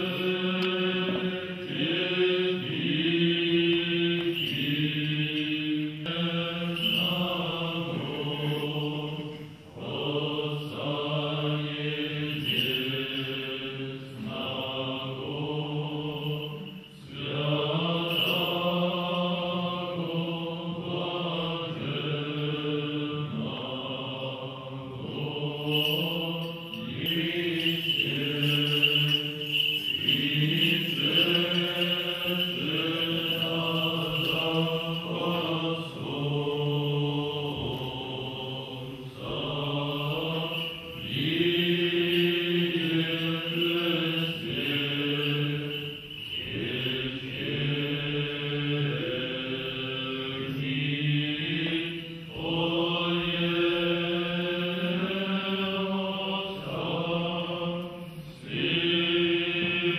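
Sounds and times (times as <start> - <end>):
choir singing chant: 0.0 - 59.9.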